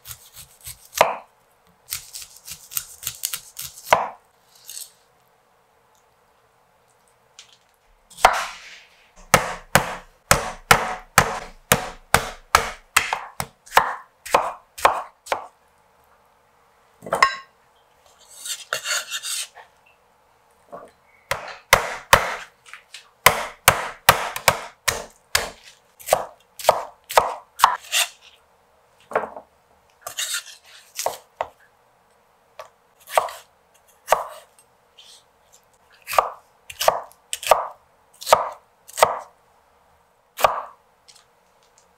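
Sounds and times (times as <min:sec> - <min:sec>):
knife chopping on wooden board: 0:00.1 - 0:01.2, 0:02.7 - 0:04.2, 0:08.2 - 0:08.6, 0:09.2 - 0:15.5, 0:21.3 - 0:22.5, 0:23.2 - 0:28.1, 0:31.0 - 0:31.5, 0:33.1 - 0:33.4, 0:34.1 - 0:34.4, 0:36.1 - 0:39.3, 0:40.4 - 0:40.7
knife scraping board: 0:01.9 - 0:05.0, 0:08.1 - 0:09.0, 0:18.1 - 0:19.7, 0:27.6 - 0:28.4, 0:30.0 - 0:31.2.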